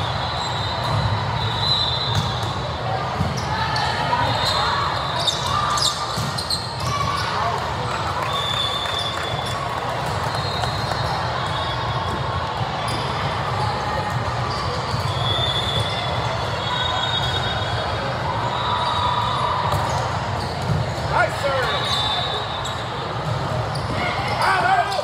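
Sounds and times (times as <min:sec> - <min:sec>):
indistinct crowd chatter: 0:00.0 - 0:25.0
volleyballs hit and bouncing: 0:02.0 - 0:04.6, 0:05.2 - 0:08.2
high-pitched shoe squeaks: 0:04.3 - 0:06.9.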